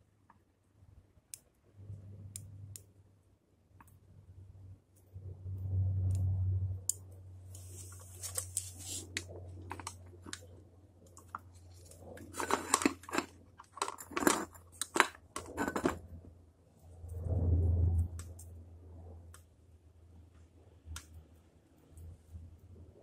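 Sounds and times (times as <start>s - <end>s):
low hum: 3.9s - 14.6s, 15.4s - 23.0s.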